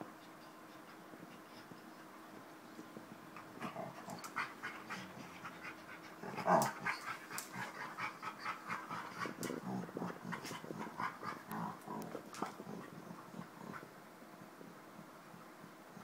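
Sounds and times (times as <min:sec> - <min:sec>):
dogs breathing and mouthing: 0:03.4 - 0:13.9.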